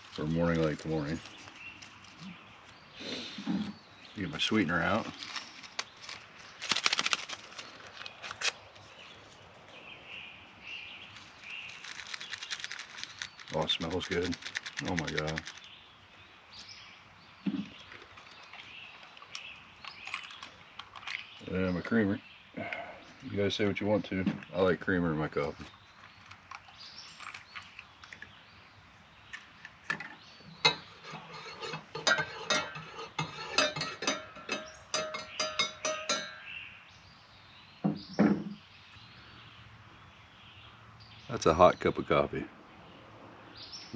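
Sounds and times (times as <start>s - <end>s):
paper packets crinkling: 4.7s - 8.6s, 11.1s - 15.6s
spoon clinking in a mug: 32.0s - 36.4s.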